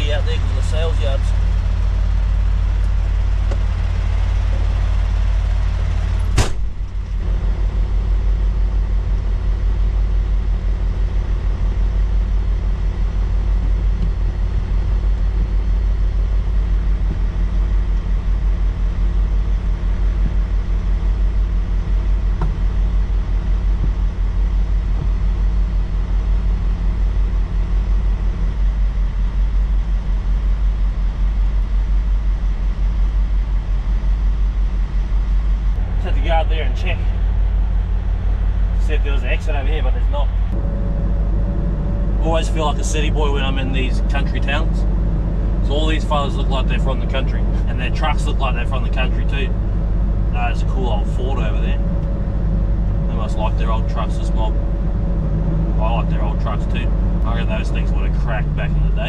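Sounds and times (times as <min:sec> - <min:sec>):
diesel engine idling: 0:00.0 - 0:59.0
cab door slamming: 0:03.0 - 0:07.2, 0:22.3 - 0:22.8.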